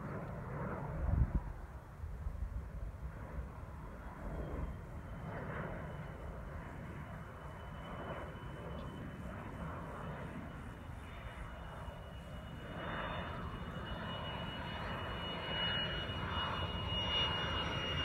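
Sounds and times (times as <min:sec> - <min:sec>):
jet engine whine: 0:00.0 - 0:18.0.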